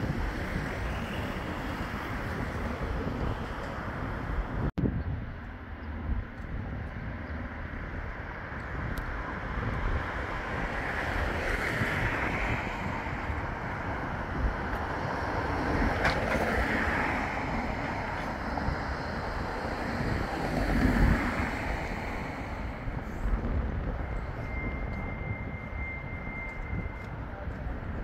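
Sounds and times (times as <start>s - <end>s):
tram approaching on track: 0.0s - 28.0s
wind buffeting microphone: 0.0s - 28.0s.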